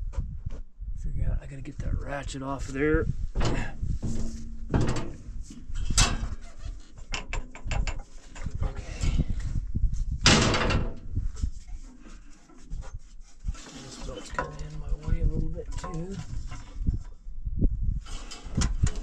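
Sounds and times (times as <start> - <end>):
hand tools clanking on metal: 3.4 - 6.4.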